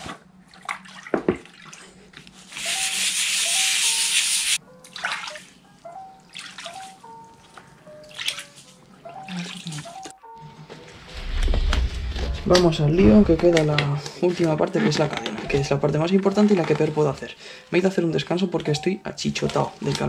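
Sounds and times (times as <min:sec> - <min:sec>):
water splashes and drips: 0:00.0 - 0:02.1, 0:04.8 - 0:10.2
water spraying: 0:02.5 - 0:04.6
light background music: 0:02.5 - 0:20.0.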